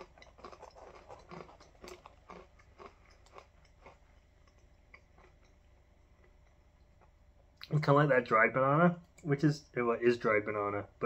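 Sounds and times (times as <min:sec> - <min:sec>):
person chewing crunchy granola: 0:00.0 - 0:06.4.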